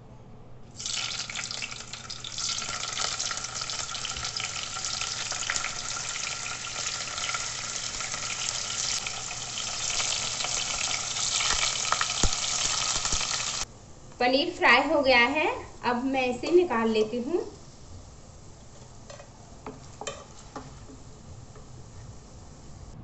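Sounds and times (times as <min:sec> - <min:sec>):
cheese cubes sizzling in hot fat: 0:00.7 - 0:13.7.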